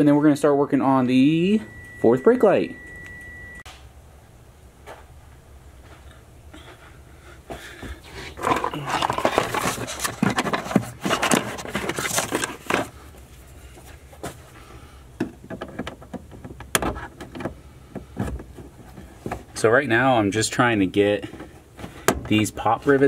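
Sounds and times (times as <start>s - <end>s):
rustling and scraping: 7.5s - 19.8s.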